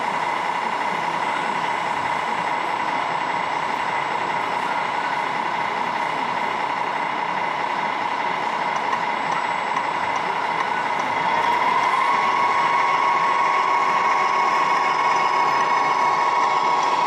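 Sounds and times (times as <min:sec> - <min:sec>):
toy truck motor whine: 0:07.5 - 0:17.0.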